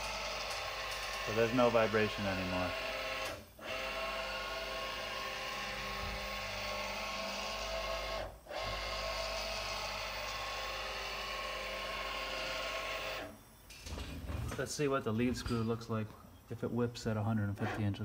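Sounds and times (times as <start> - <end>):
servo motor whining: 0.0 - 13.4.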